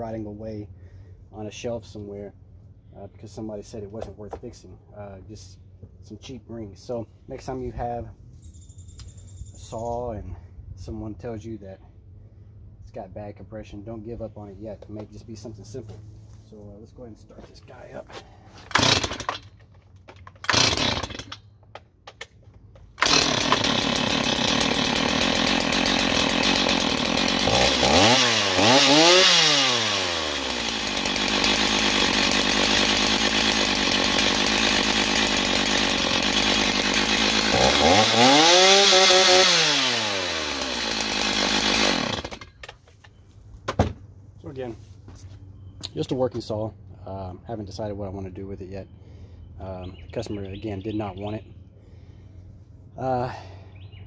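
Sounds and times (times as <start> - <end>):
chainsaw starter cord pulls: 17.6 - 43.1
chainsaw engine revving: 18.6 - 19.6, 20.2 - 21.4, 23.0 - 42.7.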